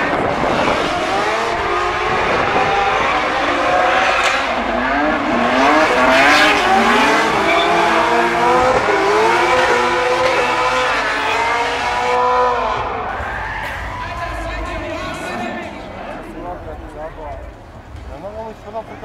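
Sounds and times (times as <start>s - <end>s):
car engine revving: 0.0s - 19.0s
tyres squealing: 7.2s - 8.3s.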